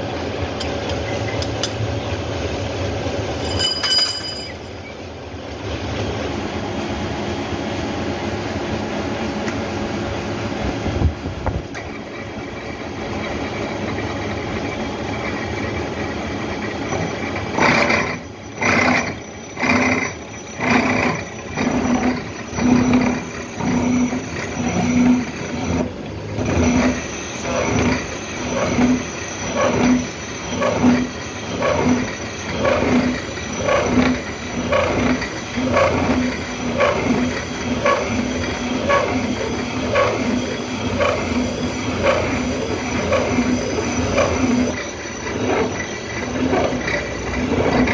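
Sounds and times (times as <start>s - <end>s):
milling machine cutting metal: 11.7s - 47.9s.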